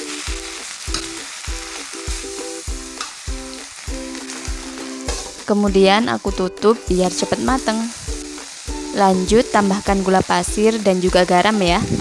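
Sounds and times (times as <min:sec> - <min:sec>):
background music with steady beat: 0:00.0 - 0:12.0
vegetables sizzling in oil: 0:00.0 - 0:12.0.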